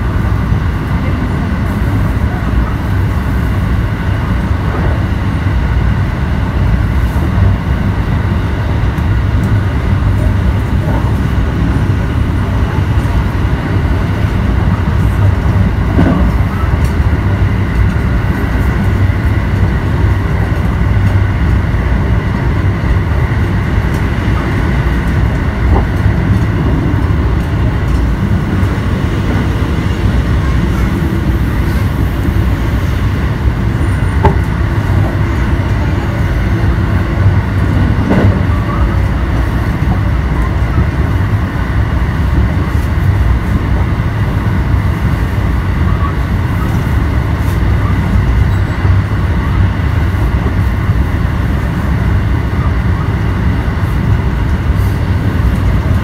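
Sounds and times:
train running at speed: 0.0 - 56.0.

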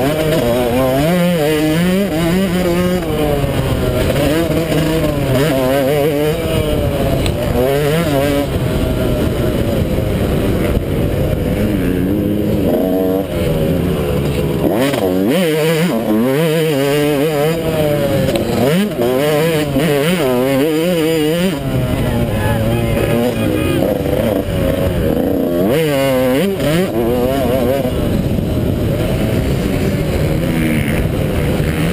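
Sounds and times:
motorbike engine revving: 0.0 - 31.9.

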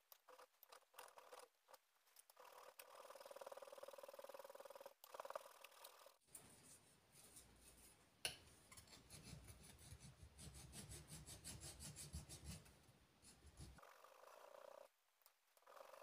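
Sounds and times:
faint hand file rasping on metal: 8.7 - 13.8.

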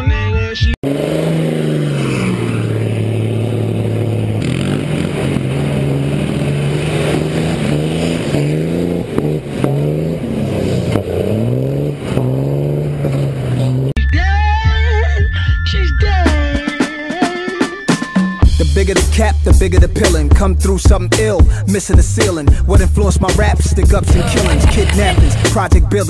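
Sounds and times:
pickup truck engine revving: 0.8 - 14.0, 18.6 - 26.0
tires spinning in mud: 0.8 - 14.0.

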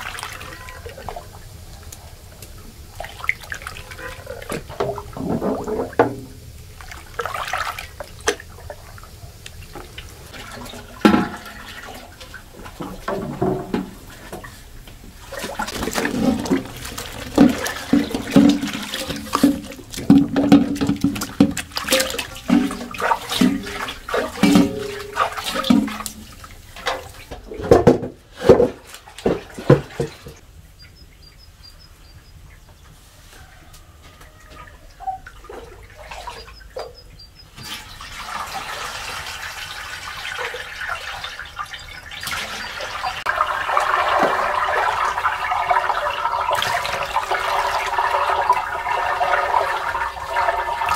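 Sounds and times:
mash knocking in metal pot: 17.4 - 26.1
liquid pouring into pot: 42.9 - 50.9.

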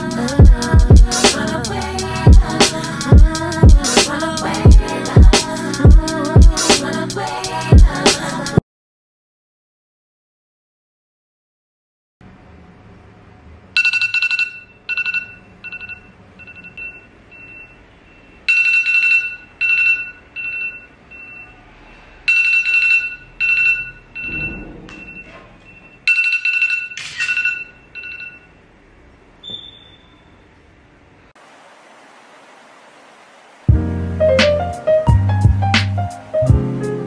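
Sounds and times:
phone alarm chiming melody: 13.8 - 21.6, 22.3 - 28.6.

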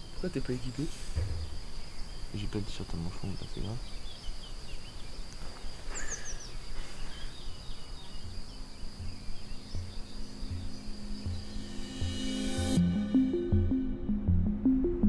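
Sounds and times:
birds chirping: 0.0 - 12.8
insect trill: 0.0 - 13.0
soft low music beat: 9.0 - 15.0.

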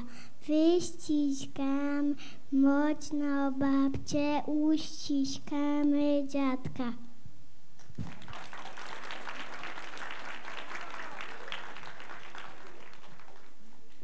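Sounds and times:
audience clapping: 7.8 - 14.0.

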